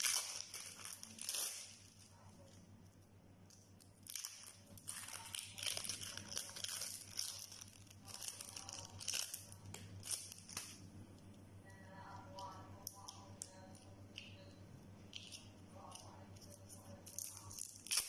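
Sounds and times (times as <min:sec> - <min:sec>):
hands crumbling cheese: 0:15.1 - 0:18.0.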